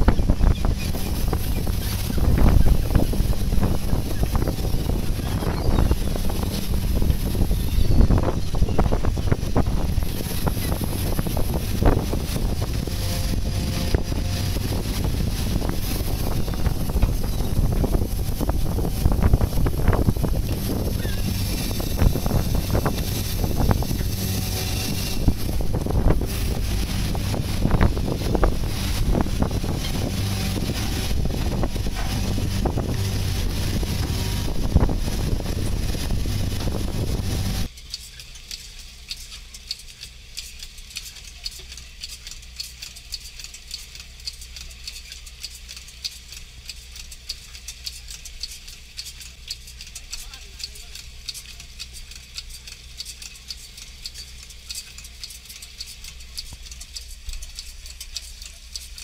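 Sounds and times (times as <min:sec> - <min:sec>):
sea noise: 0:00.0 - 0:37.7
wind on microphone: 0:00.0 - 0:37.7
machine humming: 0:00.0 - 0:37.8
baiting machine ticking: 0:00.0 - 0:59.0
boat engine: 0:00.0 - 0:59.0.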